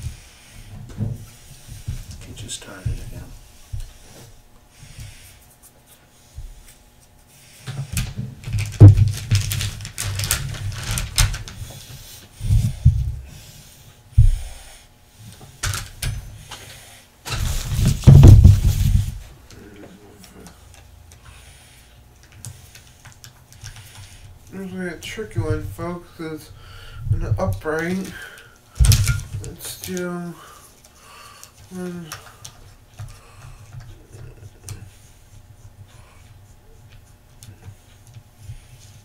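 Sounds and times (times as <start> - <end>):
objects handled on a worktable: 2.9 - 13.2, 28.8 - 30.1.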